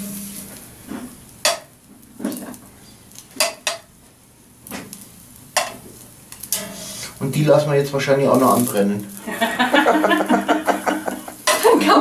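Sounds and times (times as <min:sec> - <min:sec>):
metal tongs clinking on grill: 0:05.6 - 0:06.8, 0:11.4 - 0:11.7.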